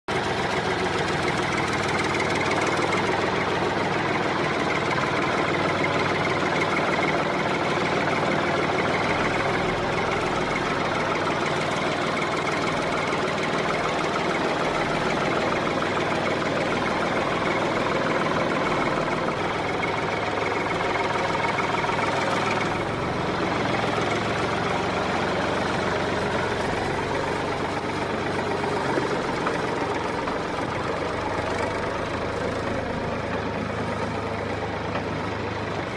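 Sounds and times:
engine idling: 0.1s - 35.9s.

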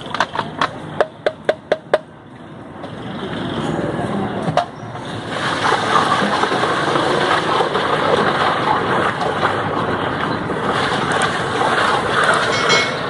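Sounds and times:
ladle stirring ice and liquid: 5.3s - 13.0s.

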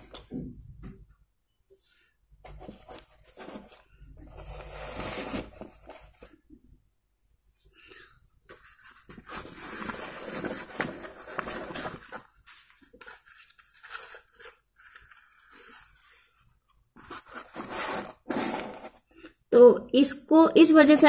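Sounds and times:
paper packet rustling: 8.8s - 16.4s.

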